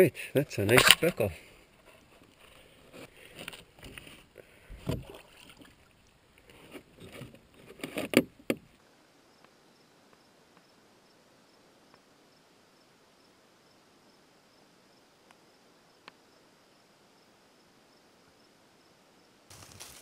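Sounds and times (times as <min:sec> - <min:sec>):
faint insect chirp: 0:08.7 - 0:20.0.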